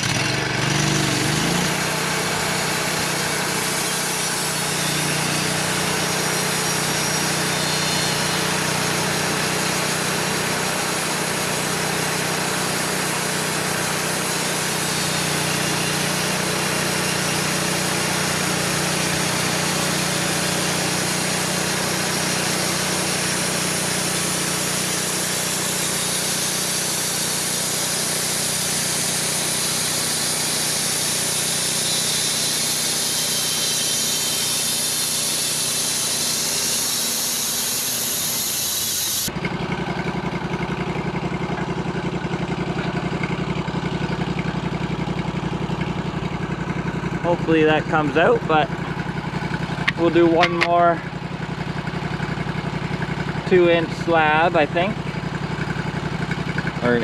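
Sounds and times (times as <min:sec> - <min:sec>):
bandsaw hissing through log: 0:00.0 - 0:39.3, 0:53.4 - 0:56.3
engine running: 0:00.0 - 0:57.0.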